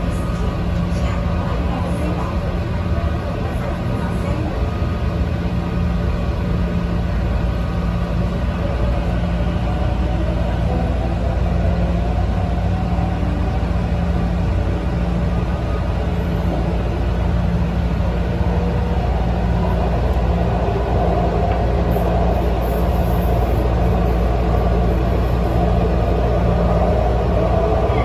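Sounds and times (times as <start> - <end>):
train wheels rumbling: 0.0 - 28.0.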